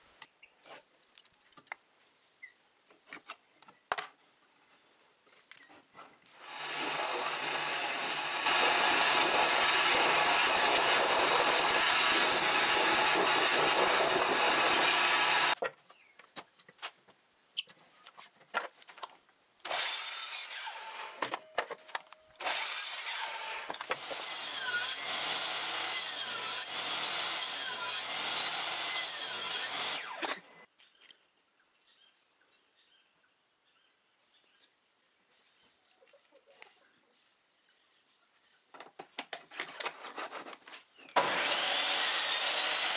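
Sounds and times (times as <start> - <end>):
loud steady machine noise: 6.4 - 15.6
miter saw cutting wood: 6.4 - 15.6, 19.7 - 21.4, 22.4 - 30.6, 41.1 - 42.9.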